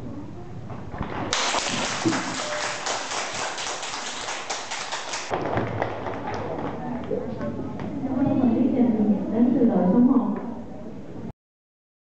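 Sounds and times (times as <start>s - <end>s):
students applauding: 1.3s - 7.1s.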